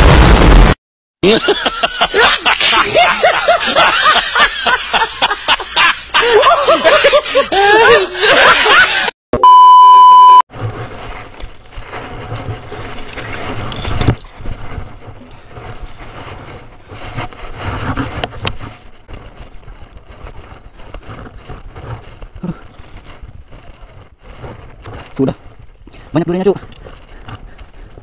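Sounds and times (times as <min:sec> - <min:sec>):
electronic beep: 0:09.4 - 0:10.4
bike pushing through brush: 0:10.5 - 0:26.1
bike tyres rumbling and rattling: 0:10.5 - 0:28.0.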